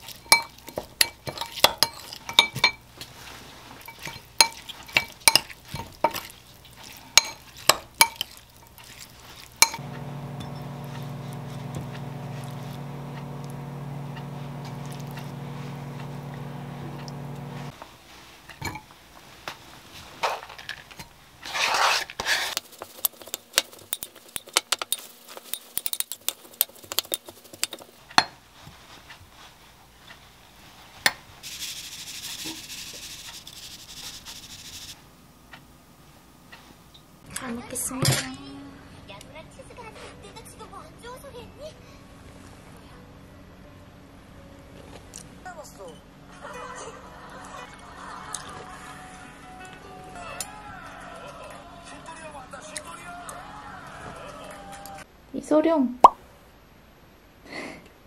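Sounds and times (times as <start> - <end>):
steady machine hum: 9.8 - 17.7
spoon scraping glass bowl: 21.5 - 27.9.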